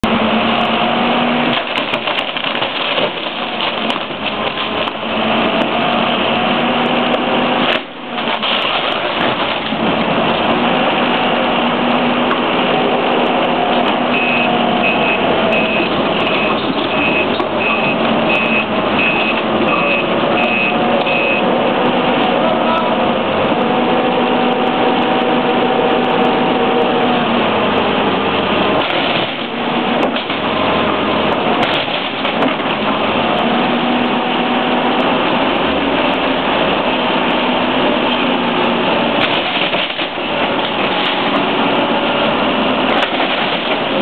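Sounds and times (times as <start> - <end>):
diesel engine running: 0.0 - 44.0
timber crunching and cracking: 1.3 - 5.8, 7.1 - 9.9, 39.2 - 44.0
backup alarm beeping: 14.1 - 21.5.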